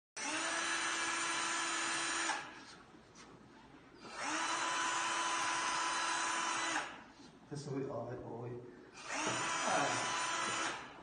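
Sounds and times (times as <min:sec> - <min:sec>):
electric drill running: 0:00.2 - 0:02.5, 0:04.0 - 0:07.0, 0:09.0 - 0:11.0.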